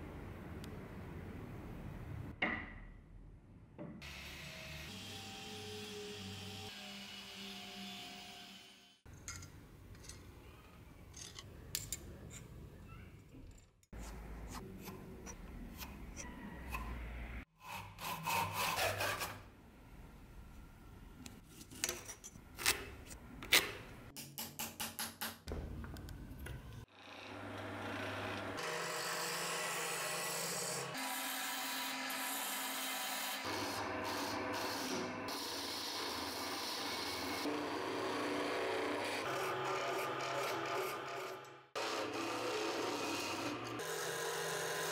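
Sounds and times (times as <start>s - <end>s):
tool rubbing and cutting wood: 17.6s - 19.4s, 27.2s - 44.9s
wood lathe turning: 26.9s - 44.9s.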